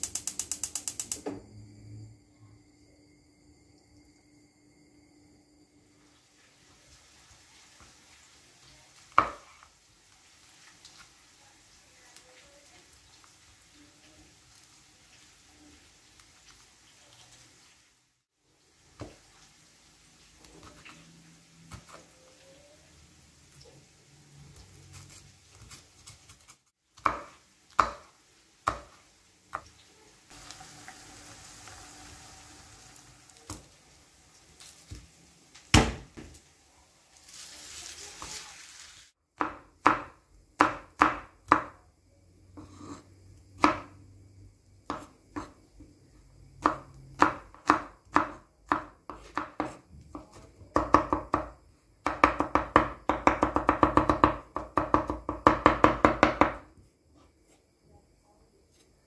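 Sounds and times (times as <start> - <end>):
knife chopping on wooden board: 27.0 - 29.6, 43.6 - 43.9, 46.6 - 56.6
papery rustle of garlic peeling: 37.0 - 39.1.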